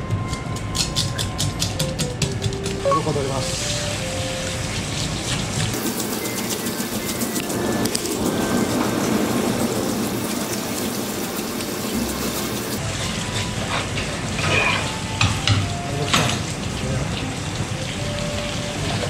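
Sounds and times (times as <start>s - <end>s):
running tap water splashing: 3.5s - 12.8s.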